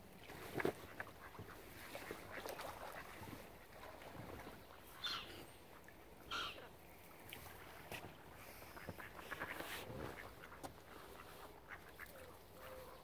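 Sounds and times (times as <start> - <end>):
water splashing: 0.0 - 13.0
ducks quacking: 4.6 - 6.7, 8.4 - 13.0.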